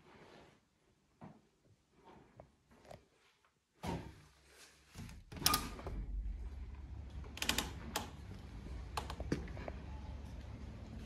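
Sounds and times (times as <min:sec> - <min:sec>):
low outdoor rumble: 0:05.8 - 0:11.0.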